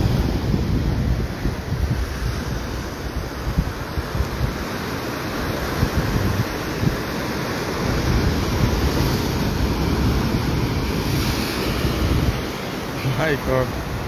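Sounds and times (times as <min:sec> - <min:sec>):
wind buffeting microphone: 0:00.0 - 0:14.0
waves breaking on rock: 0:03.6 - 0:14.0.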